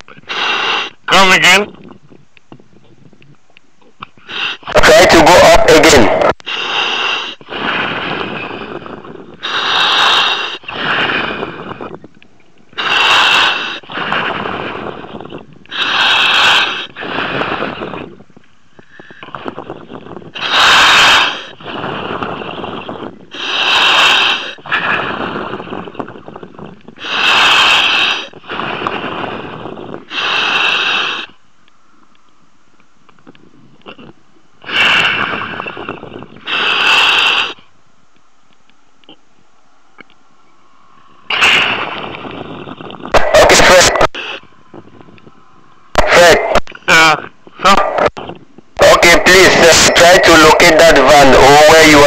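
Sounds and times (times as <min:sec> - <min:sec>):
diver breathing through regulator: 0:00.2 - 0:01.1, 0:04.2 - 0:04.8, 0:06.4 - 0:12.0, 0:12.7 - 0:31.4, 0:34.6 - 0:37.7.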